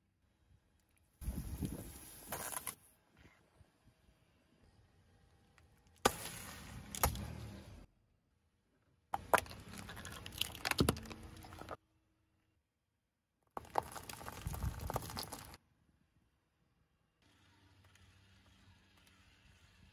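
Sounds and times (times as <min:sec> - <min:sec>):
car tyre crushing small objects: 0:05.5 - 0:07.6, 0:09.2 - 0:11.8, 0:13.5 - 0:15.6.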